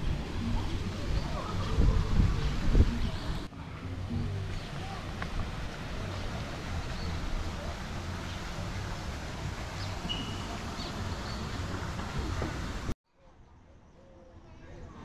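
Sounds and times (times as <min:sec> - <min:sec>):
wind rumbling on microphone: 0:00.0 - 0:13.0
bird chirps: 0:09.8 - 0:11.6.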